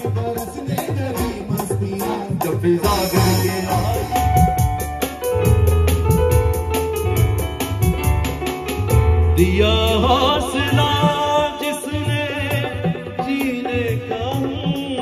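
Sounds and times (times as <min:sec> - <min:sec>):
man singing ornamented line: 0:00.0 - 0:04.4, 0:09.4 - 0:15.0
electronic keyboard: 0:00.0 - 0:15.0
hand drums: 0:00.0 - 0:15.0
deep bass line: 0:01.0 - 0:11.4.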